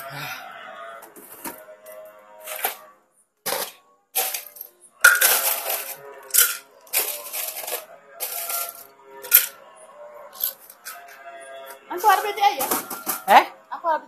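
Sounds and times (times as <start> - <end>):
cutlery scraping on a plate: 3.5 - 9.6, 10.4 - 11.8, 12.6 - 13.3.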